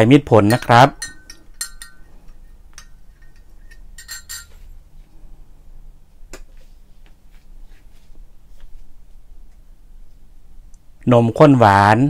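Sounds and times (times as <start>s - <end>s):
spoon knocking glass: 0.4s - 2.1s, 2.7s - 4.6s
teaspoon clinking against glass jug: 0.4s - 4.7s.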